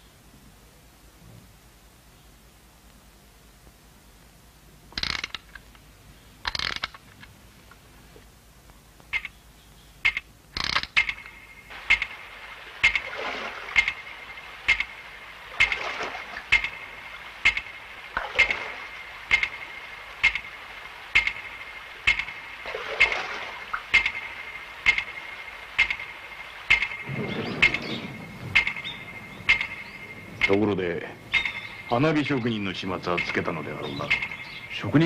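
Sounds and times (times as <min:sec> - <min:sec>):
clockwork timer ticking: 0:09.0 - 0:09.4, 0:10.0 - 0:35.0.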